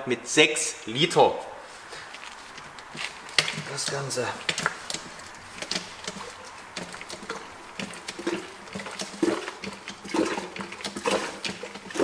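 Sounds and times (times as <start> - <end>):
hand pump clicking and knocking: 2.6 - 12.0.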